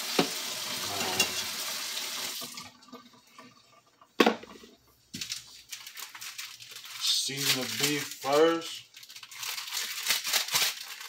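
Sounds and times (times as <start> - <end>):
water running from a tap: 0.0 - 3.7.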